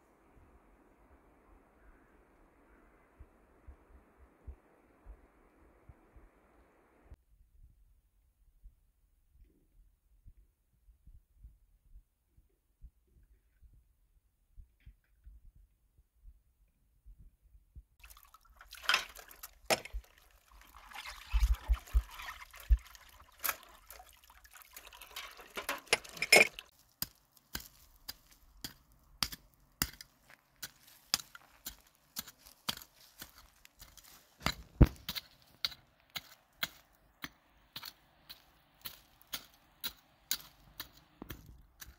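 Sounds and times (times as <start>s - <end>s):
tap water splashing into metal basin: 18.0s - 26.7s
hoe chopping into soil: 25.9s - 41.9s.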